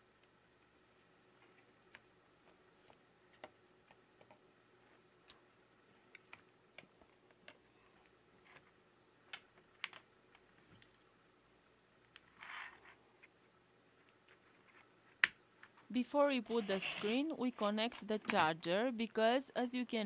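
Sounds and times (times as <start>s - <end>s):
small parts clicking and tapping: 6.1s - 11.1s.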